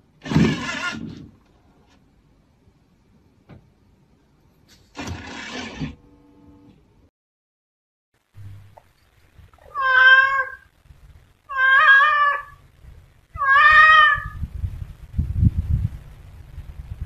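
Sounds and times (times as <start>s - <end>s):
cat meowing: 9.6s - 10.7s, 11.5s - 12.6s, 13.4s - 14.4s.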